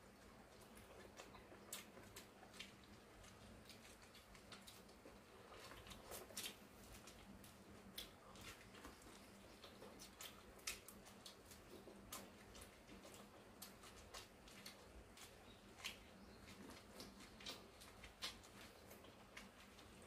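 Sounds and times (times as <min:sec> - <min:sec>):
soft chewing: 0:00.0 - 0:20.0
crisp clicks biting corn: 0:00.6 - 0:20.0.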